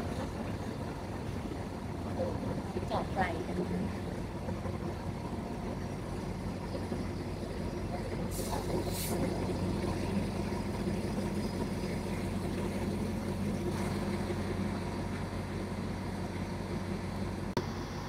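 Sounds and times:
diesel train engine idling: 0.0 - 18.0.

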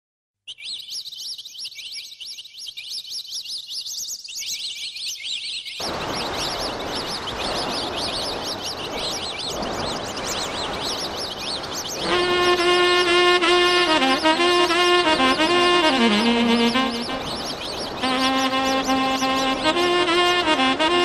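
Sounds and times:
birds chirping: 0.5 - 21.0
waterfall rushing: 5.8 - 21.0.

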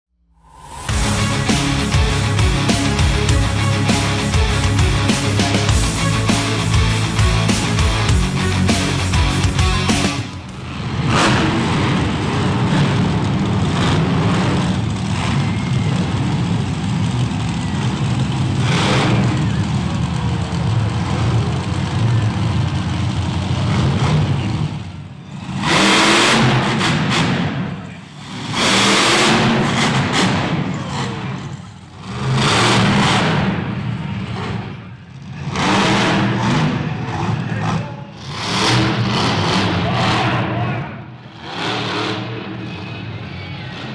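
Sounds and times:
truck engine revving: 0.4 - 43.9.

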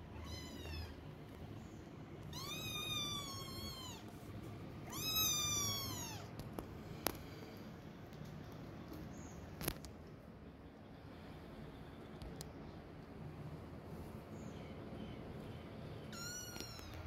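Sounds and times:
kitten meowing: 0.1 - 1.0, 2.3 - 4.0, 4.9 - 6.3, 16.1 - 17.0.

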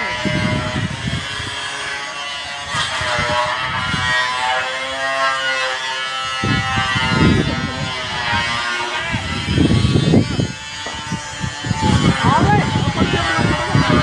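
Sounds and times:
low rumbling microphone bursts: 6.3 - 14.0.

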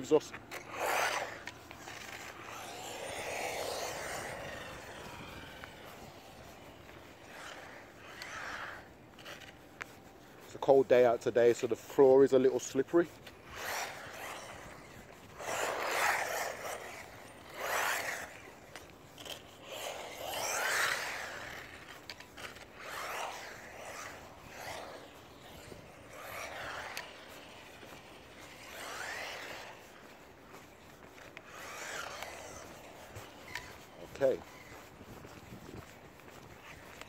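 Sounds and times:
rc car motor bursts: 0.5 - 9.5, 13.4 - 29.8, 31.5 - 34.4.

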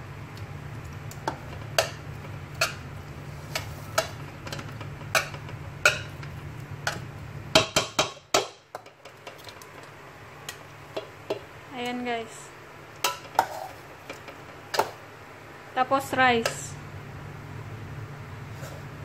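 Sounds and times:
metal spoon knocking on pot: 6.9 - 9.0.

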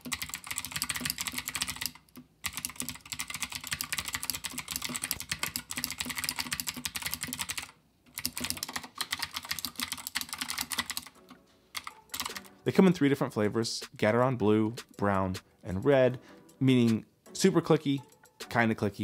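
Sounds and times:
mechanical keyboard clicking: 0.0 - 11.2, 11.8 - 12.5.

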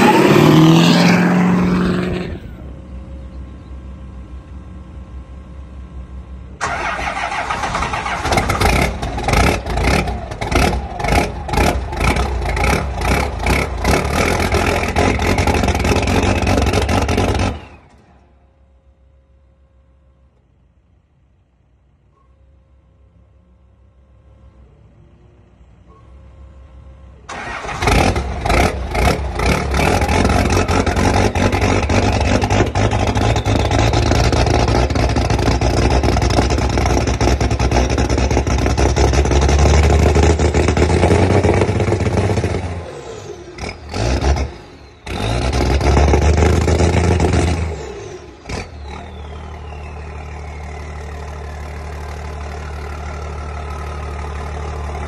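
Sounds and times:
turbocharger whistle: 0.0 - 2.8, 29.9 - 37.1, 43.1 - 51.8
diesel truck engine revving: 0.0 - 2.9, 6.6 - 18.2, 27.3 - 55.0.

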